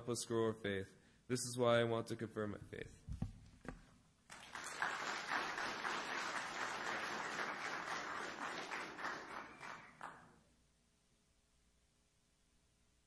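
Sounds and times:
audience applauding: 4.3s - 10.4s.

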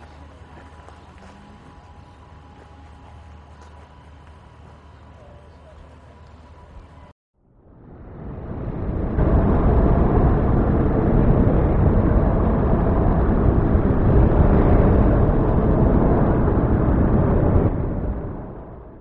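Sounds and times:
loud rumbling roar: 7.8s - 19.0s.

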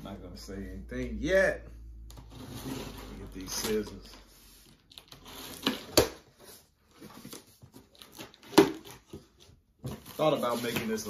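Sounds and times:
cardboard and tape rustling: 2.3s - 11.0s.

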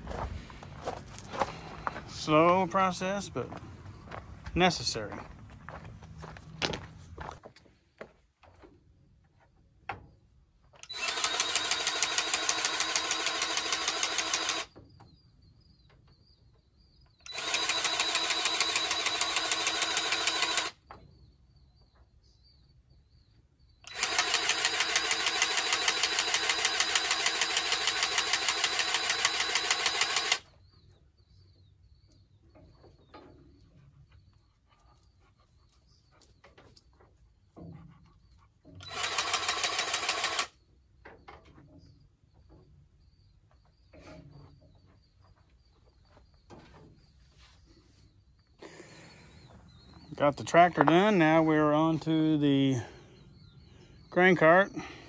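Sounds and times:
powered grease gun clattering: 10.8s - 14.8s, 17.2s - 20.8s, 23.8s - 30.4s, 38.8s - 40.5s.

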